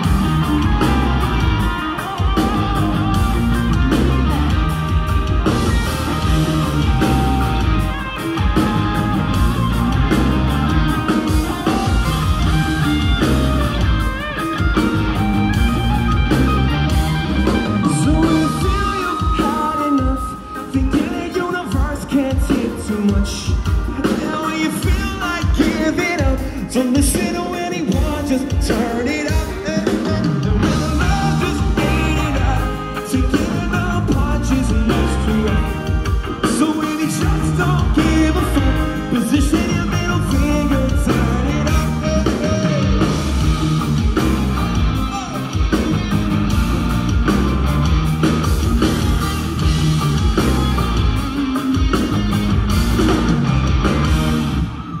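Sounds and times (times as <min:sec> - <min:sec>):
live rock band playing: 0:00.0 - 0:55.0
person singing lead vocals: 0:17.5 - 0:43.6, 0:45.0 - 0:46.0.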